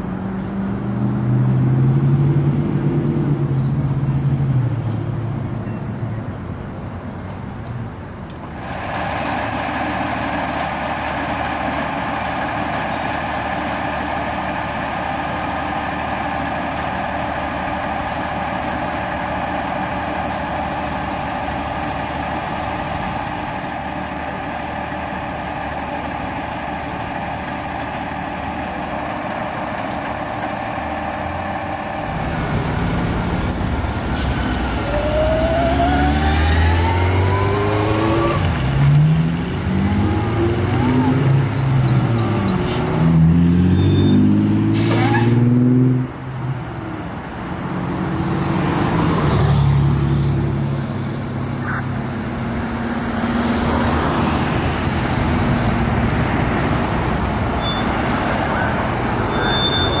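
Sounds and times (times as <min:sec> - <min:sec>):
diesel engine accelerating: 0:00.0 - 0:05.6, 0:08.3 - 1:00.0
air brake hiss: 0:44.8 - 0:45.3.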